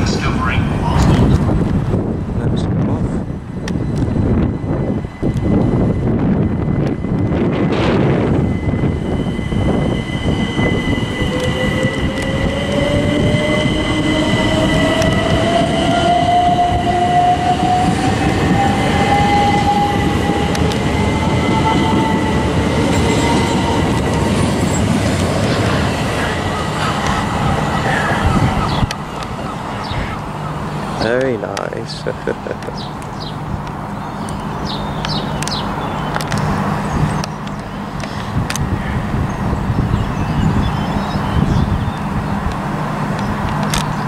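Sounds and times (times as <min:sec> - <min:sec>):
wheels rumbling on rail: 0:00.0 - 0:44.0
electric train motor whine: 0:03.2 - 0:31.3.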